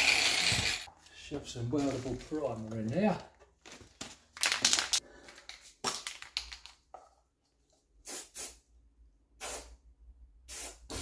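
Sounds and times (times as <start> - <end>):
aerosol can spraying: 8.0 - 8.6, 9.4 - 9.7, 10.5 - 11.0.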